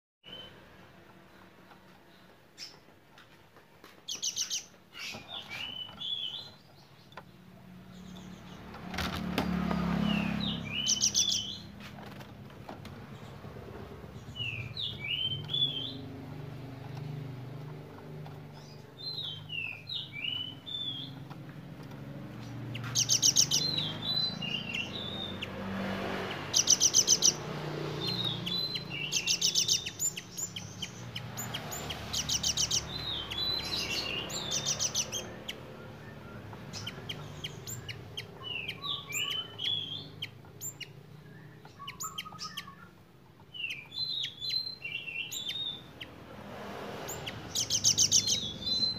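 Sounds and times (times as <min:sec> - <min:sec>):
bird singing chirps and whistles: 0:04.1 - 0:06.9, 0:10.0 - 0:11.7, 0:14.2 - 0:16.1, 0:18.6 - 0:21.2, 0:22.7 - 0:25.5, 0:28.0 - 0:46.1, 0:47.1 - 0:48.9.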